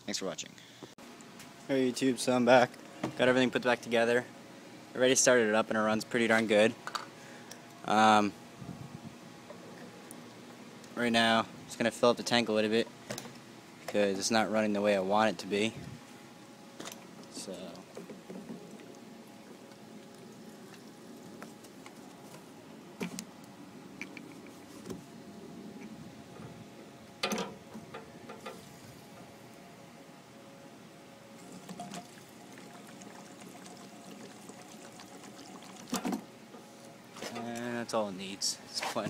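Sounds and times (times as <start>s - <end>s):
fuel trickling into tank: 31.4s - 36.2s.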